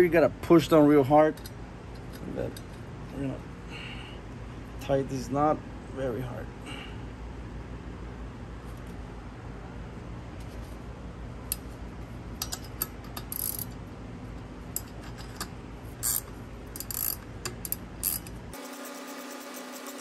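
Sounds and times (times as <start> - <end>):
ratcheting wrench clicking: 12.4 - 13.8, 14.7 - 18.4.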